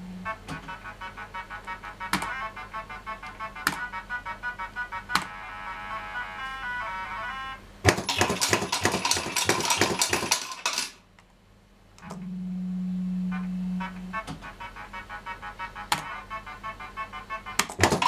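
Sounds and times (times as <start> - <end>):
low buzz: 0.0 - 1.5, 12.0 - 14.3
mechanical clicking and rattling: 7.9 - 11.0, 17.6 - 18.0.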